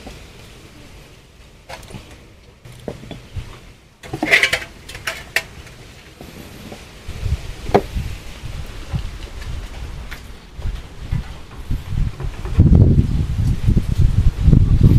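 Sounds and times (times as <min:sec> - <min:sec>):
fish clattering in metal basin: 0:04.0 - 0:05.8.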